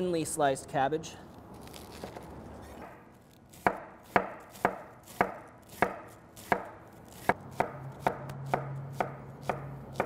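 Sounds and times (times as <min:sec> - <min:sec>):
knife cutting cabbage on board: 0:03.5 - 0:10.0.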